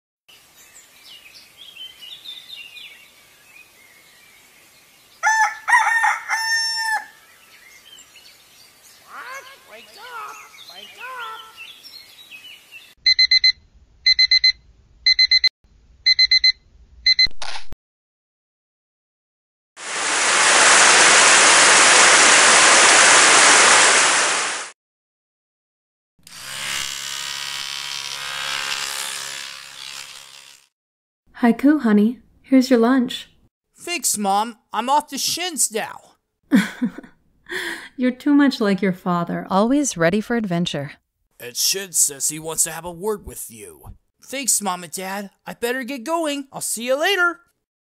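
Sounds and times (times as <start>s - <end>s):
small birds chirping: 0.3s - 5.3s, 7.3s - 13.0s
rooster crowing: 5.2s - 7.3s
shower water spraying: 19.8s - 24.7s
electric toothbrush buzzing: 26.2s - 30.7s.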